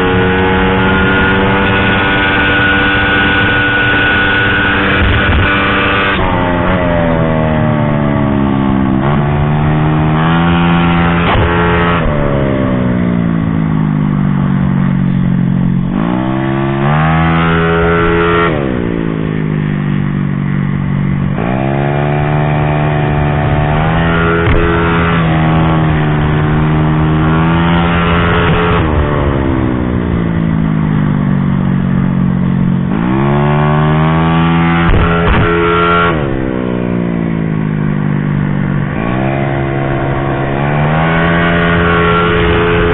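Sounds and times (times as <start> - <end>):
scooter engine revving: 0.0 - 42.9.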